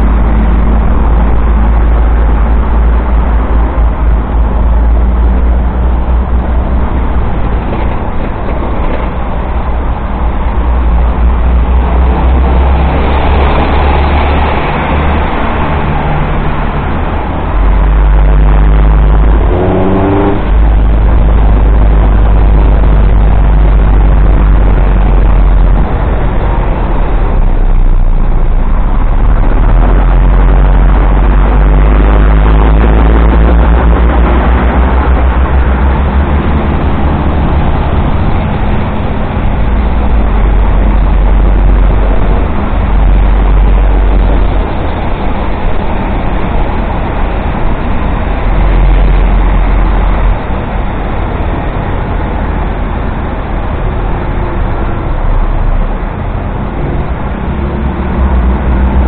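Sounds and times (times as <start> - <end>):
wind buffeting microphone: 0.0 - 59.0
motorcycle engine: 12.8 - 27.3.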